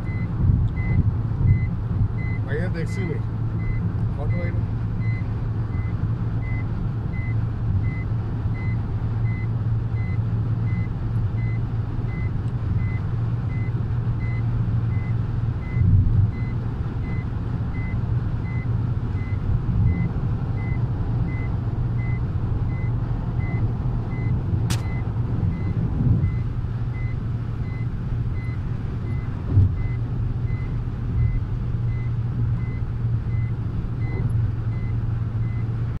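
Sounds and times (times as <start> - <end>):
engine and tyre drone: 0.0 - 36.0
sharp click: 24.7 - 25.0.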